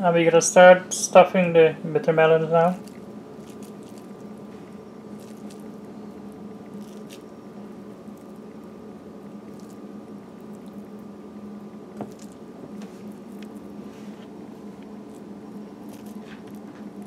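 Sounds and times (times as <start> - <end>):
steady low hum: 0.0 - 17.0
filling squished by hand: 2.8 - 4.4, 5.1 - 5.9, 6.7 - 7.3, 9.5 - 9.8, 12.0 - 12.4.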